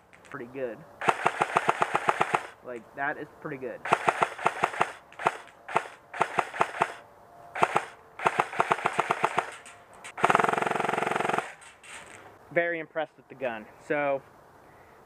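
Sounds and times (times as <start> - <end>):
airsoft rifle firing: 1.0 - 2.6, 3.8 - 7.0, 7.6 - 11.7.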